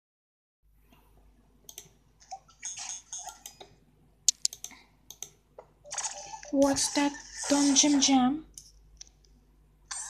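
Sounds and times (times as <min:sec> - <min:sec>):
computer keys clicking: 0:01.6 - 0:02.0, 0:04.3 - 0:06.4.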